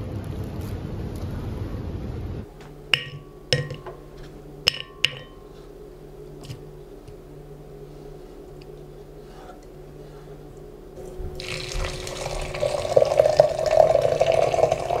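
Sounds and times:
low room hum: 0.0 - 15.0
spices clinking in glass pitcher: 3.0 - 4.0, 4.7 - 5.4, 11.4 - 15.0.

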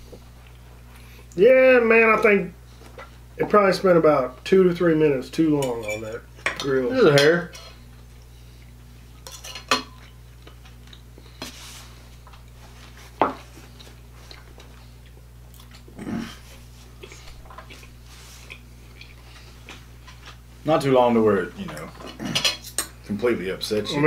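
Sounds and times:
knife and fork clinking on plates: 5.6 - 7.8, 9.2 - 10.2.

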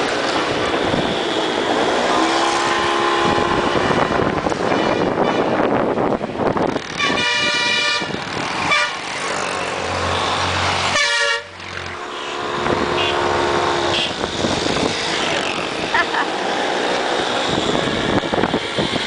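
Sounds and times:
bus passing drone: 0.0 - 19.0
vehicle horns honking: 2.8 - 3.8, 4.6 - 5.7, 7.0 - 9.0, 10.9 - 13.3, 13.9 - 14.2.

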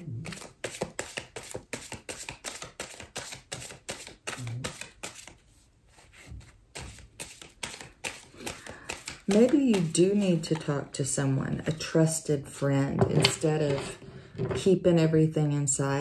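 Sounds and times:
cards shuffling: 0.2 - 10.8.

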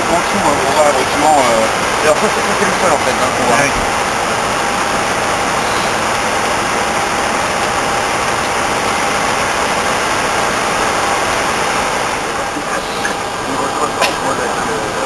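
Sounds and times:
aircraft cockpit rushing noise: 0.0 - 15.0
faint steady whine: 0.0 - 15.0.

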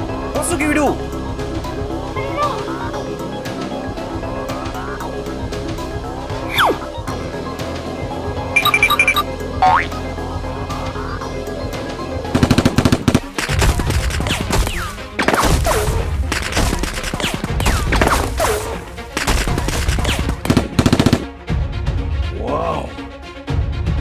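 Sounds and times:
background music: 0.0 - 24.0
machine gun fire bursts: 12.3 - 18.2, 19.1 - 21.3.

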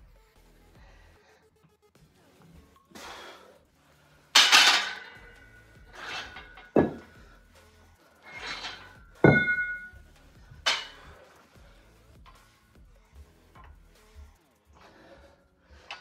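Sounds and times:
weight plates clanking: 4.4 - 7.2, 8.2 - 10.0, 10.7 - 11.1.

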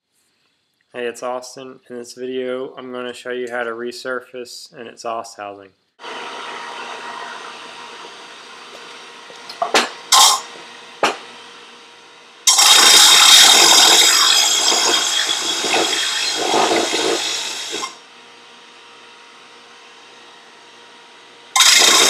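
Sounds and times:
disc sander running: 6.0 - 22.0
loud sustained grinding: 12.5 - 18.0, 21.6 - 22.0.

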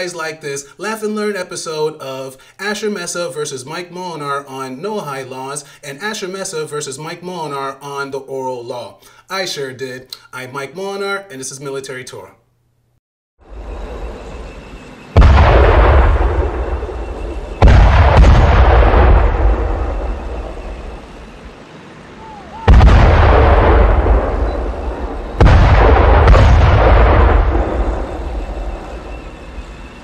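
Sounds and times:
artillery booms: 15.2 - 21.5, 22.6 - 30.0.

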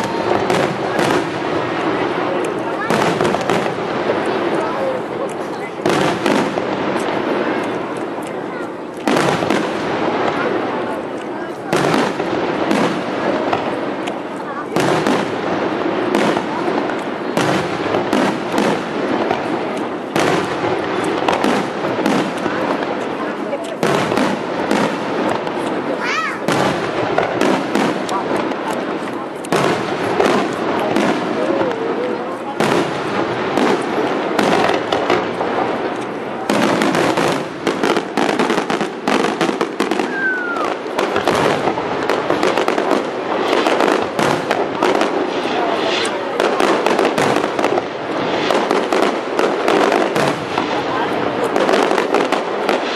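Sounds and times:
firework crackling: 0.0 - 52.9
firework shells bursting: 32.6 - 52.9.

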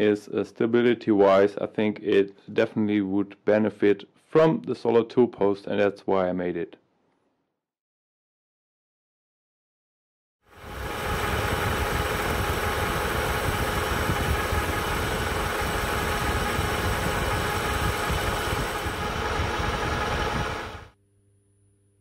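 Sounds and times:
metal lathe cutting: 10.7 - 20.9.

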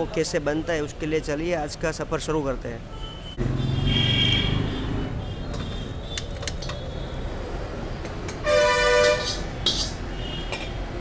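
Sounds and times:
street background noise: 0.0 - 11.0
vehicle horn honking: 2.9 - 6.0, 8.4 - 9.4.

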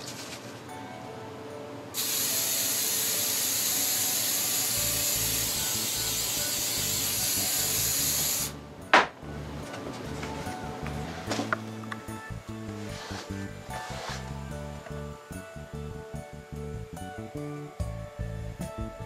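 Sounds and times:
aerosol can spraying: 2.0 - 8.6.

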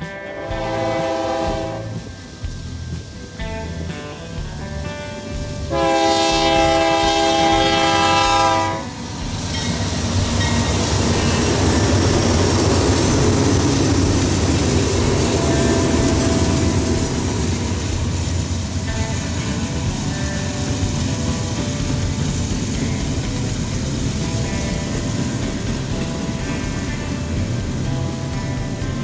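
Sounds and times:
diesel locomotive engine drone: 0.0 - 29.0
wheels clattering on rails: 0.0 - 29.0
train air horn blast: 0.3 - 2.2, 5.6 - 9.0, 15.1 - 18.2.

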